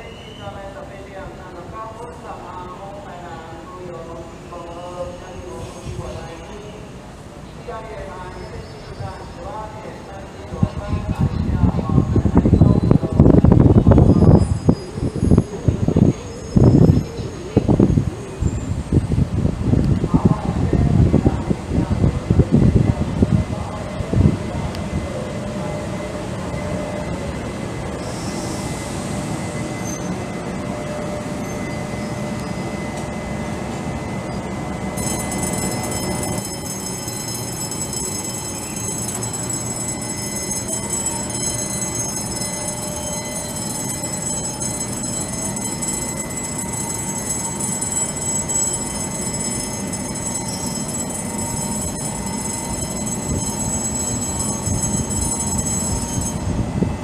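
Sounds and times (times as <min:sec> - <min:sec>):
train wheels rumbling: 0:00.0 - 0:57.0
high-pitched whine: 0:21.3 - 0:57.0.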